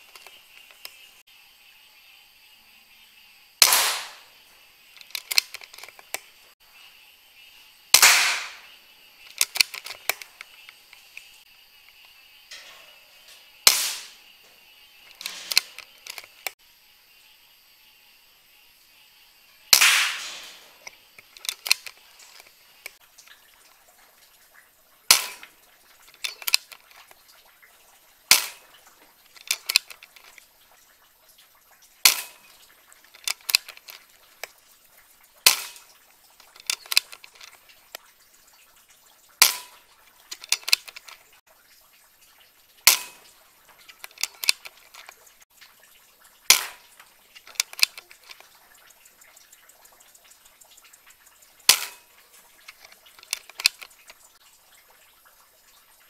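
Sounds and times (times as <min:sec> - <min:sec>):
air rifle cracks: 0:03.6 - 0:04.3, 0:07.9 - 0:08.7, 0:13.7 - 0:14.2, 0:19.7 - 0:23.0, 0:25.1 - 0:25.5, 0:28.3 - 0:28.6, 0:32.0 - 0:32.5, 0:35.4 - 0:35.8, 0:36.4 - 0:37.6, 0:39.4 - 0:41.2, 0:42.8 - 0:43.2, 0:46.5 - 0:46.8, 0:51.7 - 0:52.0, 0:52.7 - 0:54.0
light clicks: 0:46.5 - 0:54.4.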